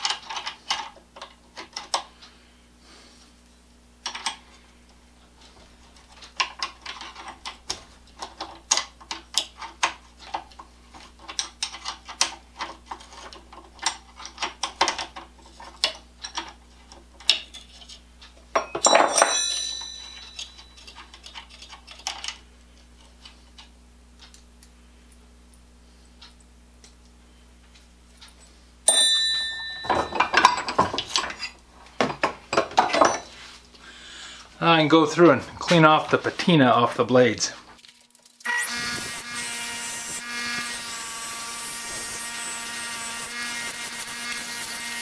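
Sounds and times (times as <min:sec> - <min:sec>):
metal clang: 0:18.6 - 0:21.0, 0:28.9 - 0:33.3.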